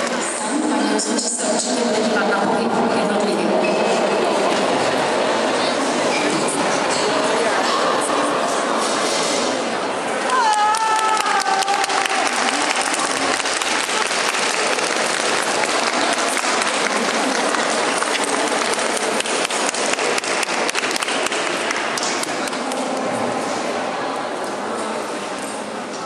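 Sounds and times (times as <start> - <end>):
spectators applauding: 10.2 - 23.1.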